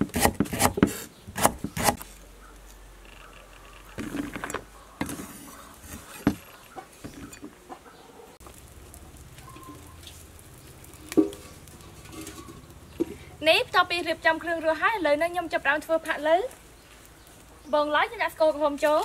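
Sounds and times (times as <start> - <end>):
knife scraping food into basket: 5.0 - 7.4.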